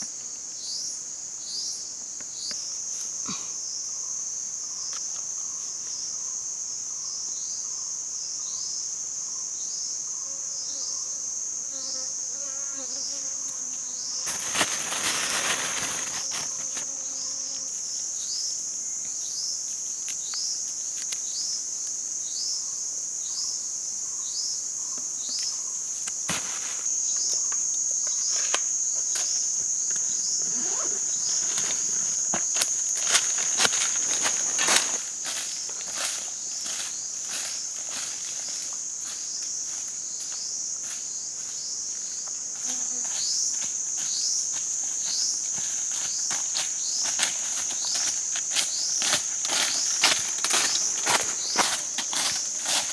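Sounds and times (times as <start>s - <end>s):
forest insects droning: 0.0s - 52.9s
rustling: 14.2s - 17.0s, 28.2s - 36.8s.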